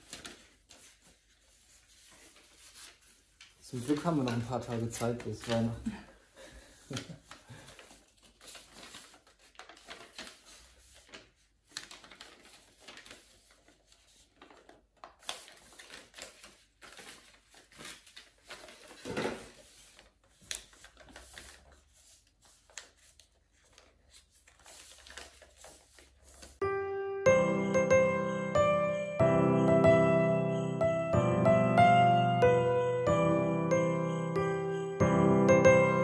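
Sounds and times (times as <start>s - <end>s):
rustling of things being packed: 0.0s - 26.6s.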